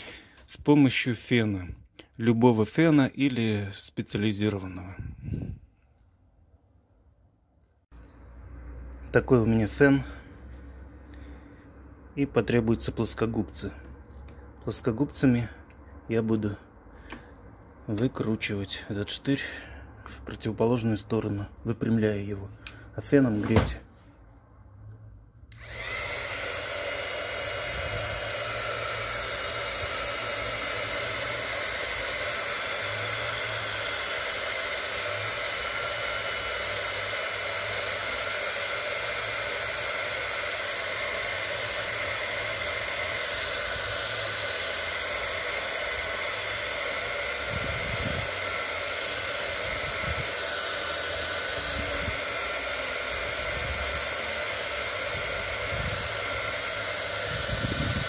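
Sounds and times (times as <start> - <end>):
hot-air blower whirring: 17.0 - 17.8, 25.5 - 58.0.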